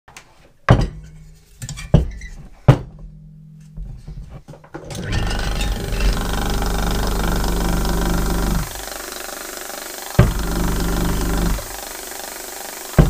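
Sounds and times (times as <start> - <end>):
mechanical motor hum: 4.8 - 13.0
sharp knocks with ringing hum: 10.2 - 10.8.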